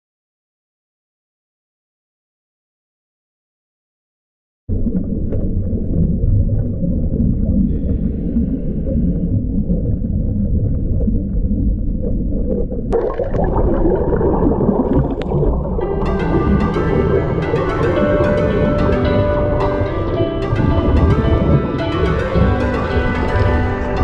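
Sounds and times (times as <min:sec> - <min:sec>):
faint clicks underwater: 0:04.7 - 0:13.6, 0:14.4 - 0:15.9
muffled underwater rumble: 0:04.7 - 0:24.0.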